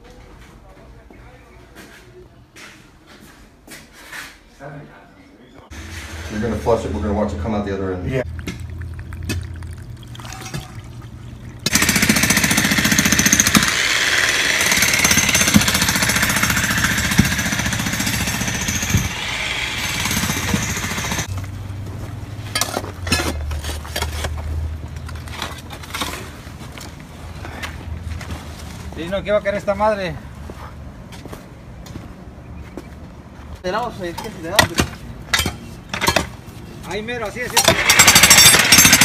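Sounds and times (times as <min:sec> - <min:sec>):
water gushing from drain pipe: 0:08.2 - 0:11.7.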